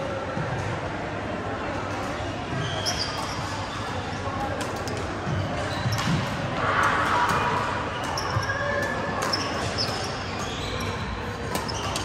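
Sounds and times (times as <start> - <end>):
hubbub of players and onlookers: 0.0 - 12.0
shoes squeaking on floor: 2.5 - 4.1, 4.8 - 6.4, 7.9 - 12.0.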